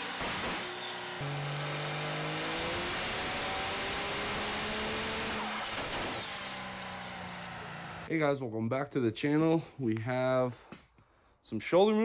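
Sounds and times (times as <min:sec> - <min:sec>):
diesel engine revving: 0:00.0 - 0:08.1.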